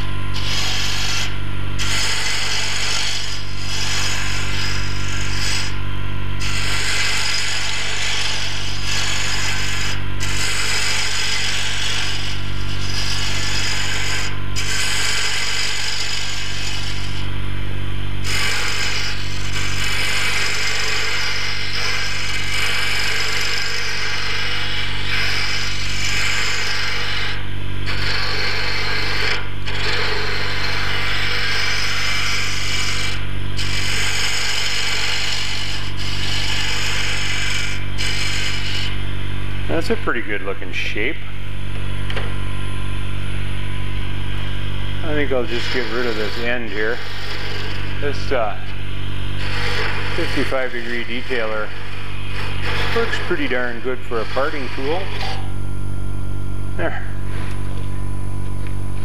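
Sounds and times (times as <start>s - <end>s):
woodturning tool cutting wood: 0.0s - 17.4s, 18.2s - 41.0s, 44.3s - 55.6s
lathe motor hum: 0.0s - 39.9s, 43.4s - 55.7s.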